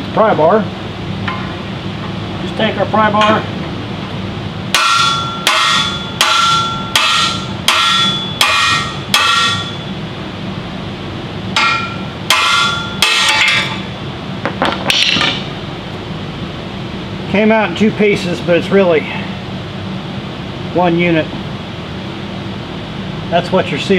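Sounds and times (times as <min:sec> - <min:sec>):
hammer striking steel pry bar: 0:04.8 - 0:09.8, 0:11.6 - 0:13.8.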